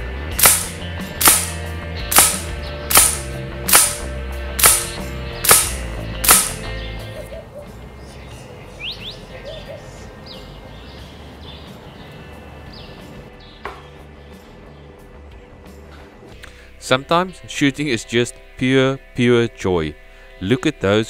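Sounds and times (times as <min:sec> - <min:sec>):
air rifle shots: 0:00.3 - 0:06.8.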